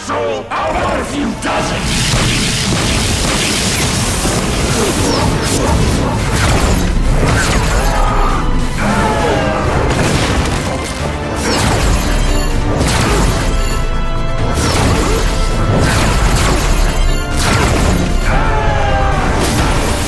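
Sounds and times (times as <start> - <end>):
dramatic score music: 0.0 - 20.0
heavy booms and crashing impacts: 0.8 - 13.8, 14.4 - 20.0.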